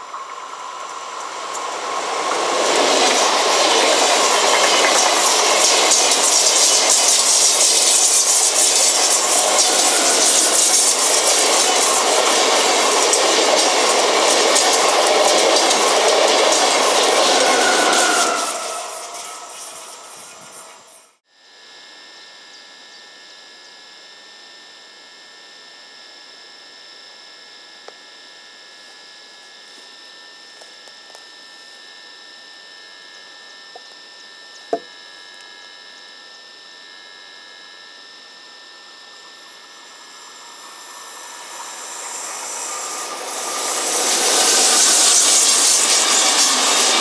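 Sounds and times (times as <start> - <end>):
electric train passing: 0.0 - 21.2, 38.4 - 47.0
high-pitched hum: 0.0 - 21.2, 29.7 - 47.0.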